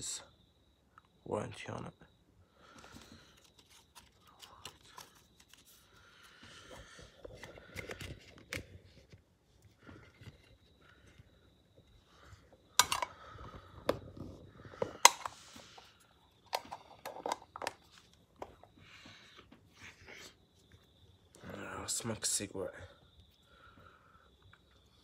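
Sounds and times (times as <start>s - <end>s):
paper packaging rustling: 2.8s - 6.0s.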